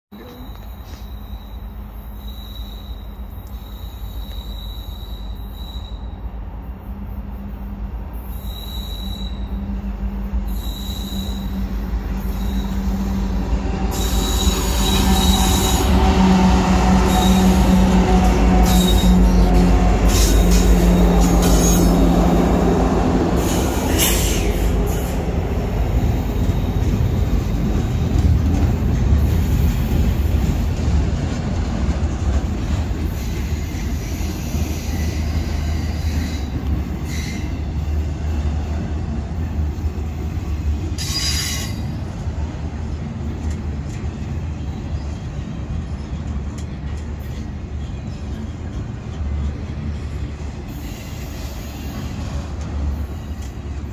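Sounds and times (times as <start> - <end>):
diesel locomotive engine drone: 0.1 - 53.9
high wheel squeals: 0.2 - 6.2, 8.2 - 9.7, 10.4 - 16.2, 17.0 - 18.0, 18.6 - 22.0, 33.1 - 37.8, 41.0 - 41.9
freight cars rumbling past: 9.5 - 41.0.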